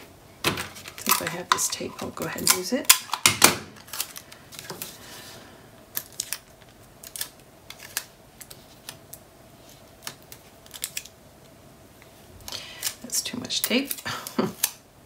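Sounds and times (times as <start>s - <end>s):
faint steady hum: 0.0s - 15.0s
hands handling paper and tape: 3.8s - 5.3s, 5.9s - 14.8s.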